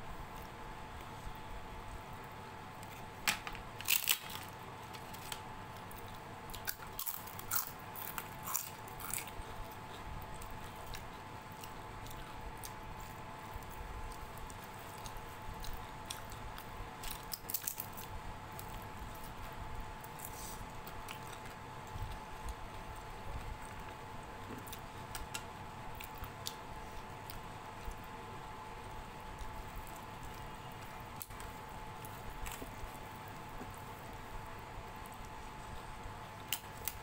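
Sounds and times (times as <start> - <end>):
crisp food crunching: 3.7 - 28.1
soft squishing of food by hand: 7.5 - 37.0.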